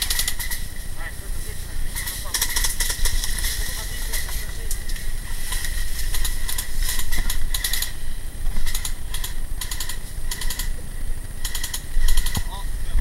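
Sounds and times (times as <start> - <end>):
airsoft guns firing bursts: 0.0 - 0.7, 5.5 - 8.0, 8.6 - 10.8, 11.4 - 12.6.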